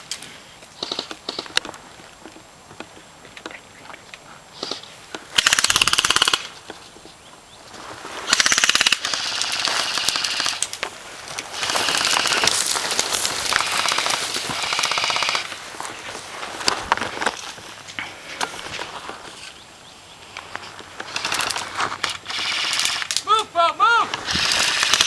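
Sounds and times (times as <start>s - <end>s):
airsoft guns firing full auto: 5.3s - 6.5s, 8.3s - 10.8s, 11.5s - 12.6s, 13.4s - 15.6s, 21.0s - 23.2s, 24.1s - 25.0s.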